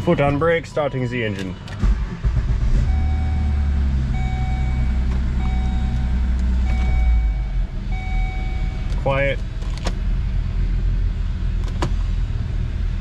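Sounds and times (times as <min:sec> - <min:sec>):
car engine starting and idling: 0:00.0 - 0:13.0
dashboard warning chime: 0:02.9 - 0:09.1.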